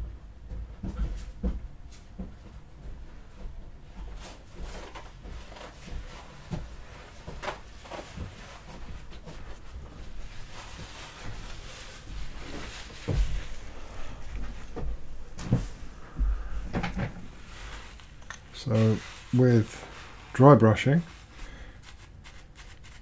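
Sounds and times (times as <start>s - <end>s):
soft rustling: 2.3s - 23.0s
heavy thump: 14.4s - 17.3s.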